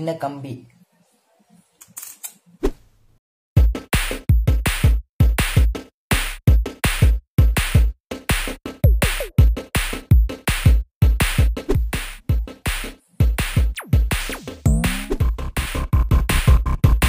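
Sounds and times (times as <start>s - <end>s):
electronic music with drum-machine beat: 3.6s - 17.0s.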